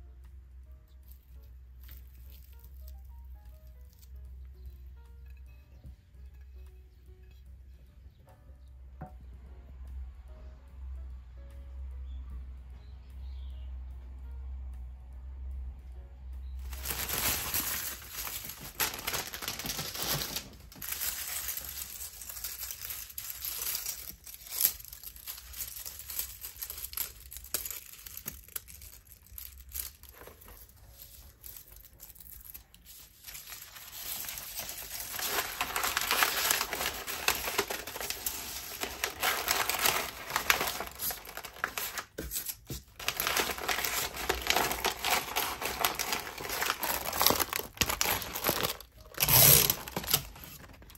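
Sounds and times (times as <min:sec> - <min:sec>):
paper rustling: 0:16.6 - 0:50.9
plastic bag crinkling: 0:16.6 - 0:50.9.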